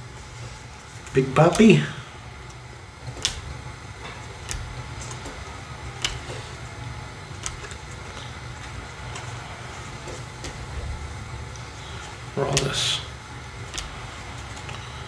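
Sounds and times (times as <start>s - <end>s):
low handling rumble: 0.0s - 15.0s
cards snapping: 2.4s - 10.7s, 11.4s - 15.0s.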